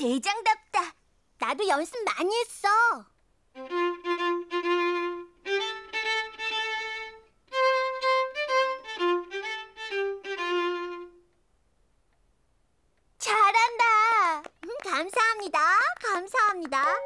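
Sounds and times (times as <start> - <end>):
solo violin playing slow tune: 3.5 - 11.4.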